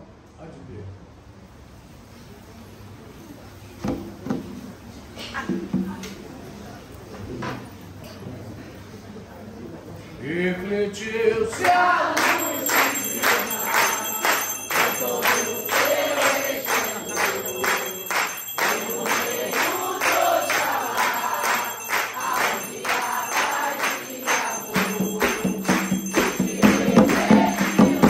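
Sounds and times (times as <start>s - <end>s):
voices singing: 10.7s - 28.0s
group clapping in rhythm: 11.5s - 28.0s.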